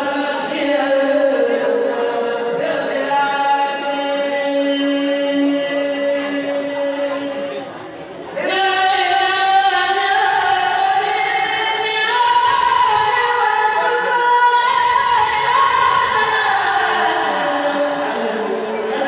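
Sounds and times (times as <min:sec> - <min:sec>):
high voice chanting: 0:00.0 - 0:19.0.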